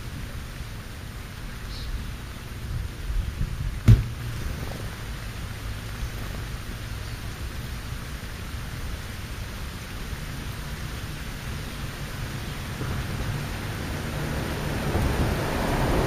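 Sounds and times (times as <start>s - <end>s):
wind rumbling on microphone: 1.4s - 16.0s
sharp knock: 3.8s - 4.2s.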